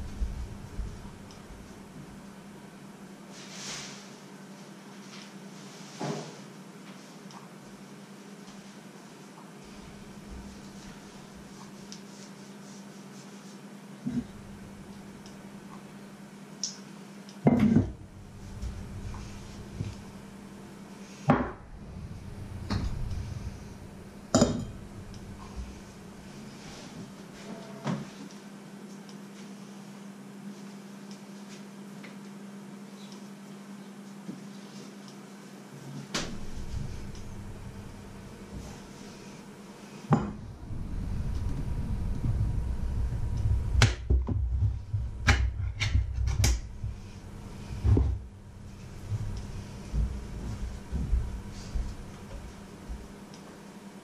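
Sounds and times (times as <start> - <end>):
handling rumble: 0.0 - 2.2, 14.0 - 15.4, 17.5 - 27.0, 36.1 - 39.5, 40.1 - 53.2
steady low hum: 0.0 - 54.0
metal and mug clanking on wood: 24.4 - 24.7.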